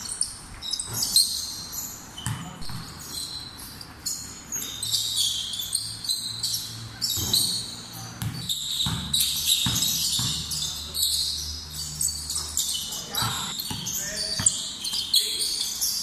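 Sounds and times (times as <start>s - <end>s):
basketball bouncing: 2.2s - 3.1s, 8.2s - 10.6s, 13.2s - 15.0s
players' voices: 12.6s - 15.6s.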